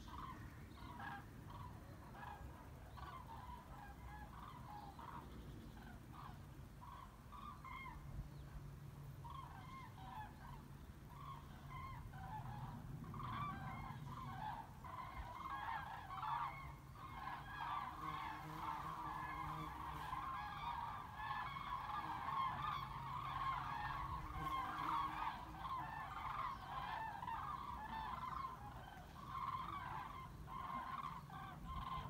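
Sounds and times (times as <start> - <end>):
cranes trumpeting in flight: 9.2 - 32.0.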